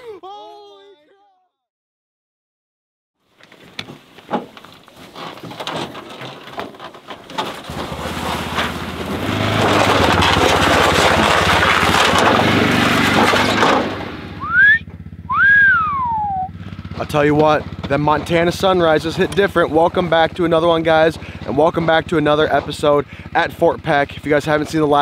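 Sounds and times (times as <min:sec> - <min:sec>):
gear knocking and clattering: 0:03.5 - 0:14.2, 0:16.6 - 0:25.0
quad engine running: 0:07.6 - 0:25.0.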